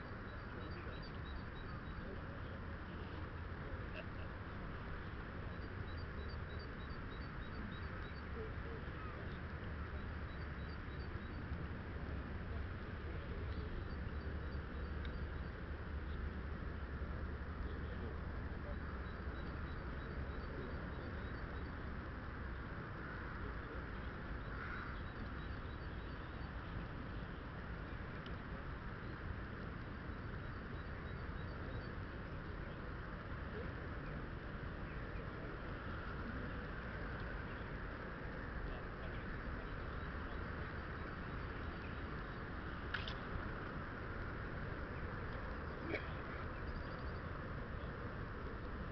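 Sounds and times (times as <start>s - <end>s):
faint high chirps: 0.0s - 3.2s, 44.8s - 47.5s
faint high bird chirps: 45.6s - 47.3s.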